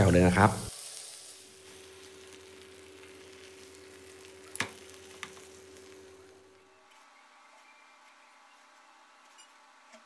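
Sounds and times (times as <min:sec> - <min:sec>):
meat sizzling in a pan: 0:00.0 - 0:06.5
faint steady hum: 0:00.9 - 0:10.0.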